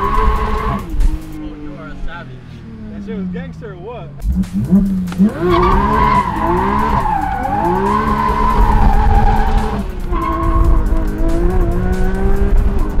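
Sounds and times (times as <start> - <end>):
car engine revving: 0.0 - 13.0
tyres squealing: 4.9 - 10.8.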